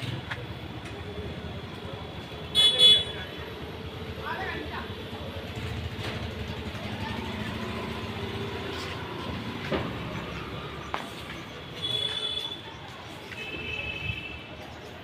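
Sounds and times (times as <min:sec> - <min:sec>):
engine low rumble: 0:00.0 - 0:12.0.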